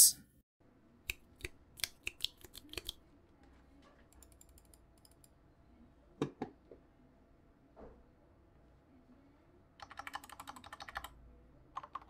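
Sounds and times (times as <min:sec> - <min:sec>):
loud keyboard clicks: 0:09.8 - 0:11.1, 0:11.8 - 0:12.0
mechanical keyboard keystrokes: 0:09.8 - 0:11.1.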